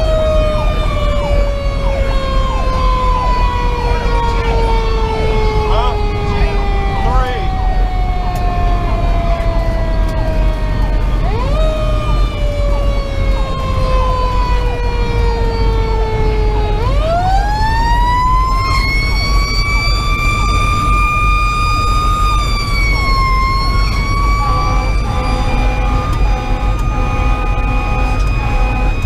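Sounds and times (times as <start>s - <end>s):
diesel engine and road rumble: 0.0s - 29.0s
mechanical siren wailing: 0.0s - 29.0s.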